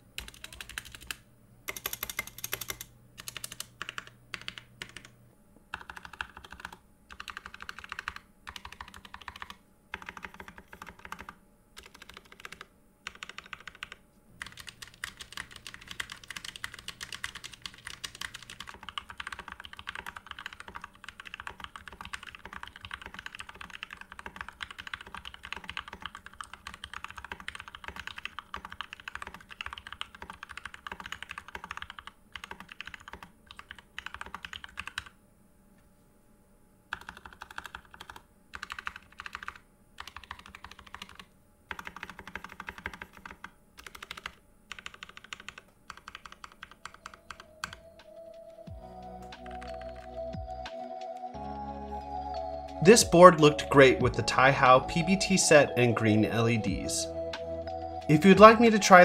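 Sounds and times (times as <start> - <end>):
mechanical keyboard typing: 0.2 - 5.1, 5.7 - 35.2, 36.9 - 47.8, 49.4 - 50.1.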